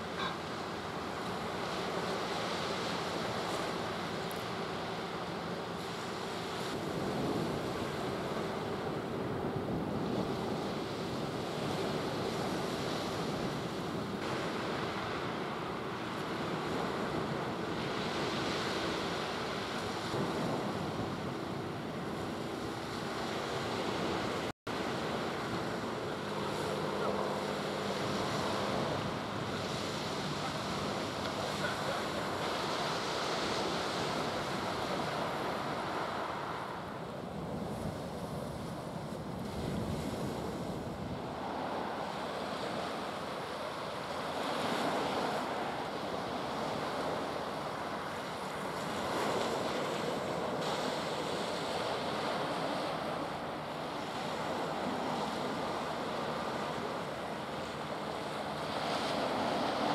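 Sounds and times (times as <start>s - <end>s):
sea surf washing on shore: 0.0s - 59.9s.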